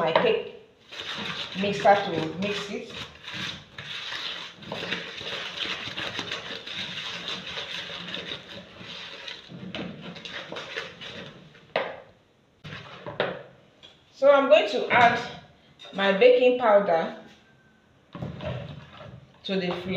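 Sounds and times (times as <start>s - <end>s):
wooden spoon scraping bowl: 0.8s - 11.7s, 12.6s - 13.3s, 18.3s - 19.9s.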